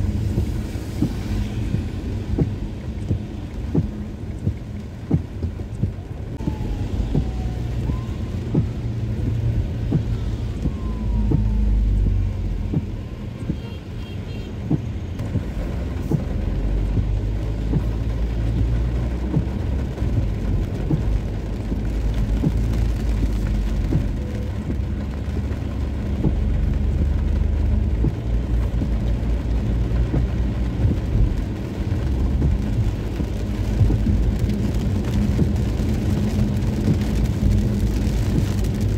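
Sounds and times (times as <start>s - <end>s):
raindrops ticking on glass: 0.0s - 13.8s, 14.6s - 38.9s
car driving on a wet road: 0.0s - 38.9s
rain drumming on a car: 0.0s - 38.9s.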